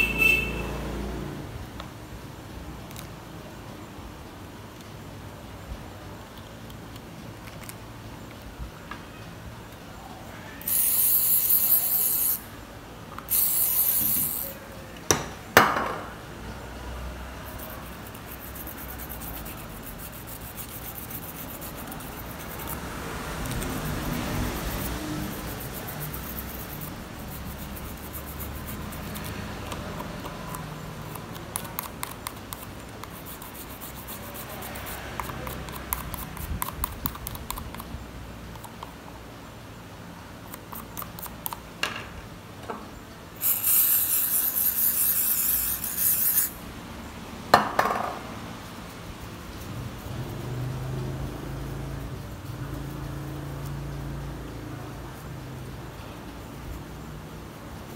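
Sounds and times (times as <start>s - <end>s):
toothbrush scrubbing plastic: 17.4s - 37.9s, 43.4s - 46.6s.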